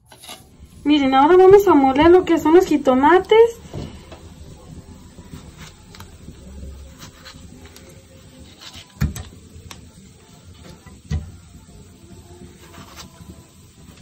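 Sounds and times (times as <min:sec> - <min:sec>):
knife cutting tomato: 0:07.0 - 0:07.5.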